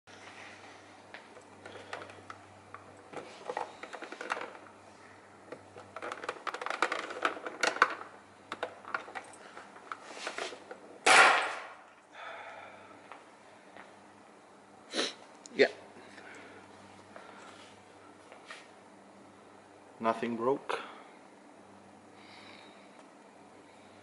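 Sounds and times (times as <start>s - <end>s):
loud plastic snap: 11.0s - 11.8s.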